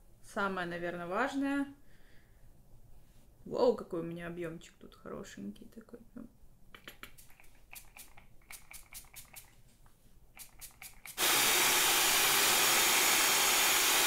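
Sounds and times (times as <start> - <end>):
spray can rattling: 7.1 - 9.6, 10.4 - 11.5
spray can hissing: 7.2 - 9.5, 10.4 - 14.0.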